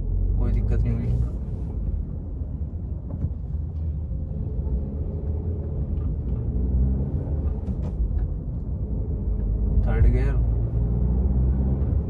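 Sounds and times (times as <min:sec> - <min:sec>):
car engine accelerating: 0:03.8 - 0:12.0.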